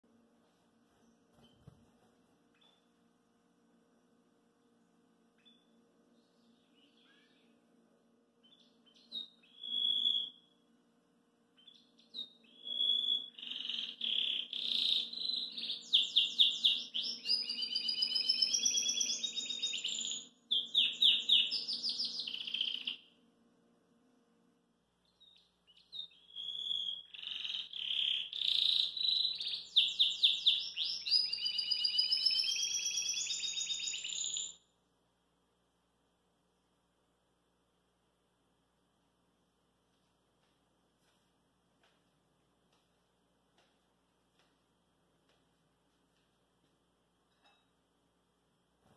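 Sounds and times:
canary singing trills: 5.4 - 7.6, 8.4 - 10.6, 11.6 - 23.1, 25.0 - 34.6.

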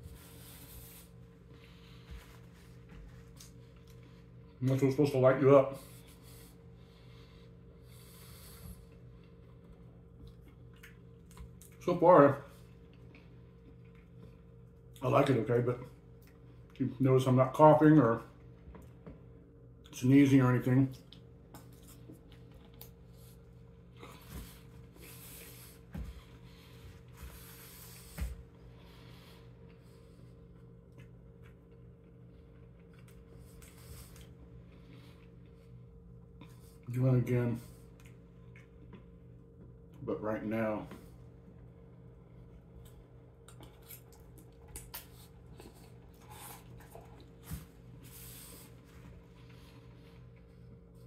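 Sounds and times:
faint steady hum: 0.0 - 51.0
chewing: 10.2 - 11.8, 42.8 - 47.6.

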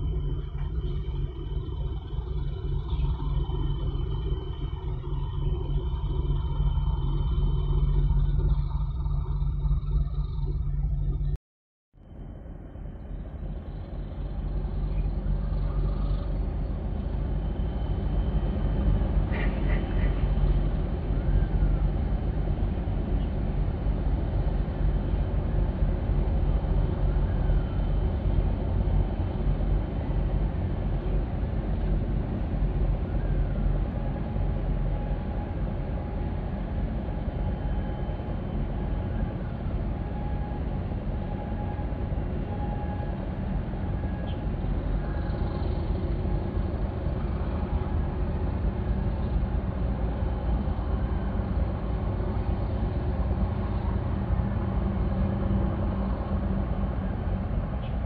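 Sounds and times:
ship engine rumble: 12.4 - 58.0.

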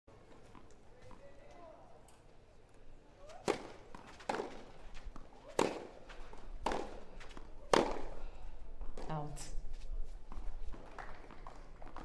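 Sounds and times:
tennis ball hit by rackets: 3.2 - 6.0, 6.6 - 8.2.

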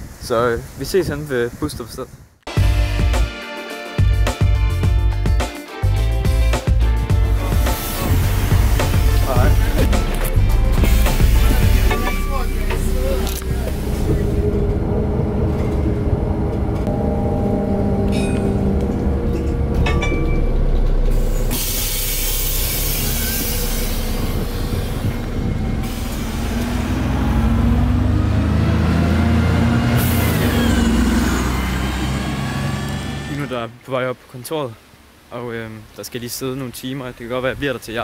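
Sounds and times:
bus engine humming: 7.1 - 33.6
air brakes hissing: 7.5 - 9.8, 10.8 - 12.6, 21.1 - 26.8.

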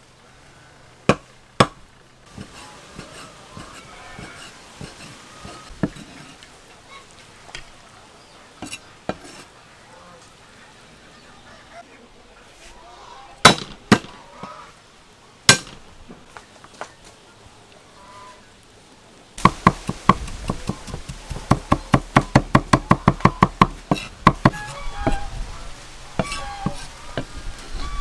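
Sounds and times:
cleaver chopping on wooden block: 19.4 - 25.2.

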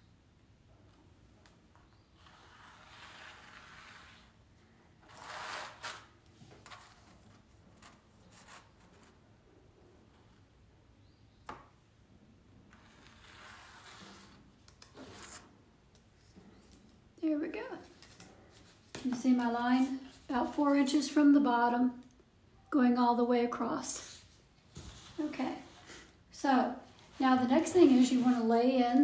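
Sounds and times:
chalk scraping on canvas: 2.2 - 4.4.

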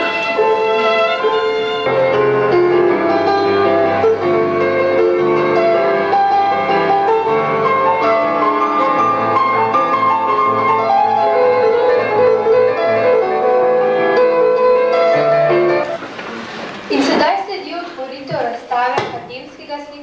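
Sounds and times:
keyboard melody over held notes: 0.0 - 16.0.

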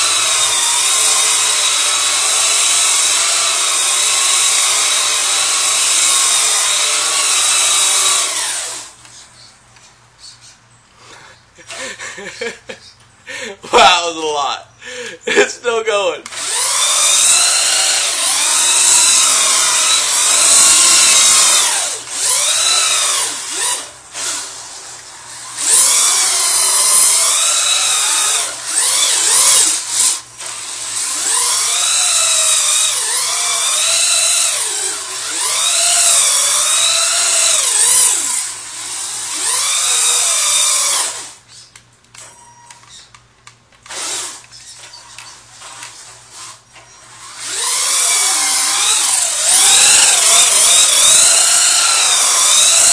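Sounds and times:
toy truck electric motor whining: 0.0 - 9.2, 16.3 - 43.2, 43.8 - 52.9.

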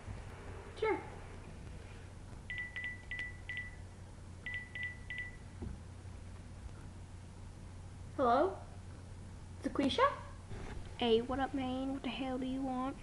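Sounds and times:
phone keypad beeps: 2.5 - 5.5.

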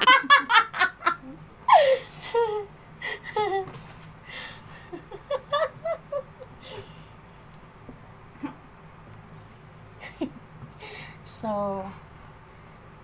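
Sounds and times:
women laughing: 0.0 - 3.7, 4.7 - 7.0.

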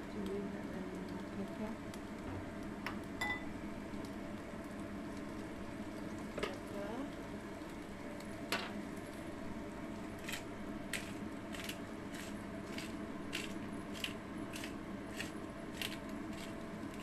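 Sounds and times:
low background hum: 0.0 - 17.0
spice grinder crunching: 10.2 - 17.0.

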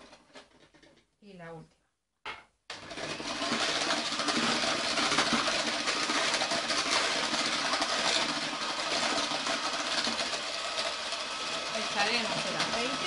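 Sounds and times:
electric hand mixer whisking: 2.7 - 13.0.

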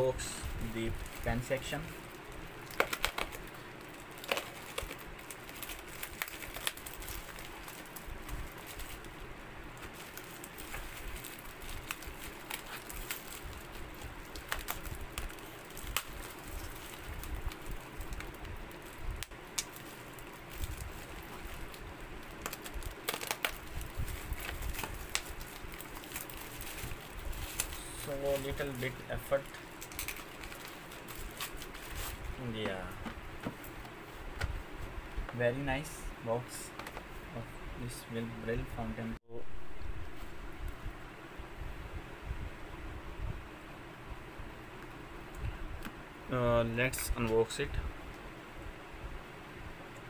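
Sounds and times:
bubble wrap crinkling: 0.2 - 34.5.

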